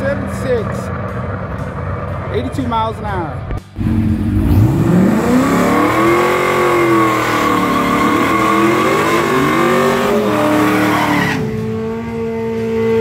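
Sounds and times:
car engine revving hard: 3.8 - 13.0.

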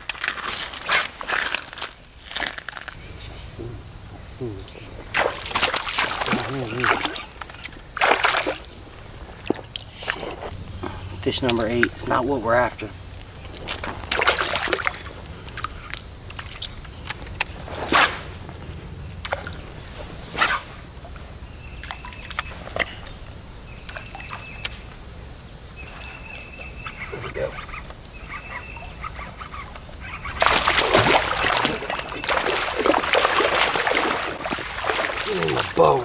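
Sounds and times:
insects buzzing: 0.0 - 36.0.

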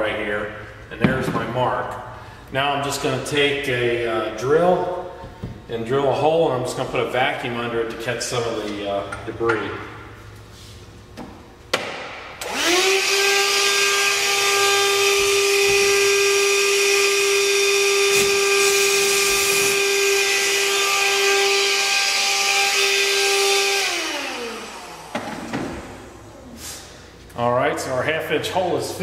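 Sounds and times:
drill boring through drywall: 12.4 - 26.3.

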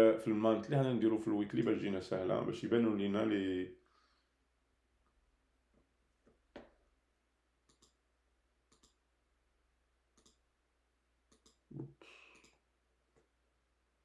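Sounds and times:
computer mouse clicks: 7.7 - 8.0, 8.7 - 9.0, 10.2 - 10.4, 11.3 - 11.7, 12.3 - 12.6.

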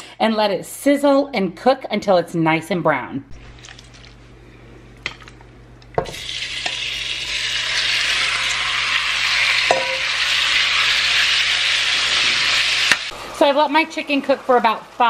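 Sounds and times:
chicken sizzling in hot oil: 6.1 - 15.0
utensil knocking against pot: 9.7 - 10.0.

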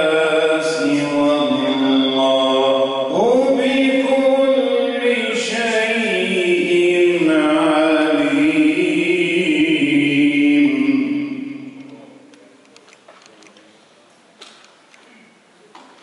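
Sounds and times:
man reciting melodically: 0.0 - 12.3.

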